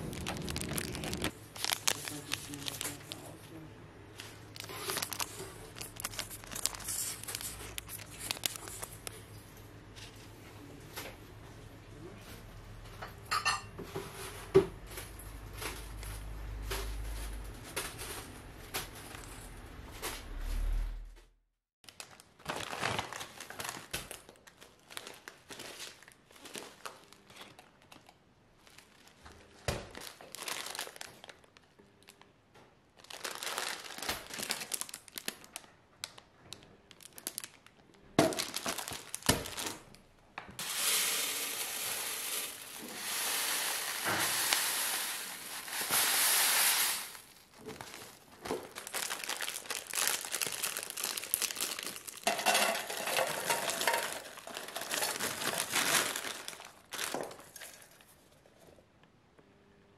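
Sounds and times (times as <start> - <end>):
bags rustling and crinkling: 0.0 - 3.5, 4.1 - 9.2, 21.9 - 31.6, 33.0 - 35.7, 38.3 - 39.9, 40.6 - 58.7.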